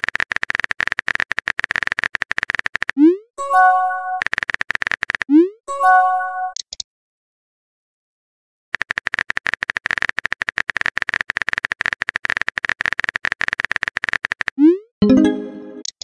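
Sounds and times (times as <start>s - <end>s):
rapid keyboard clicks: 0.0s - 3.0s, 4.2s - 5.3s, 8.8s - 14.6s.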